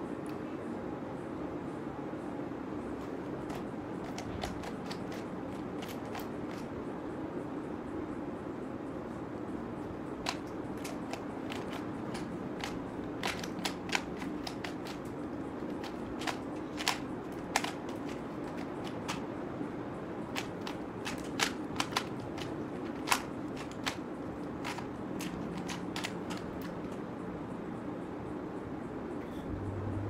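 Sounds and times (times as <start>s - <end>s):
steady low hum: 0.0s - 30.0s
puzzle cube layers clicking: 3.0s - 6.8s, 10.1s - 19.3s, 20.2s - 27.1s.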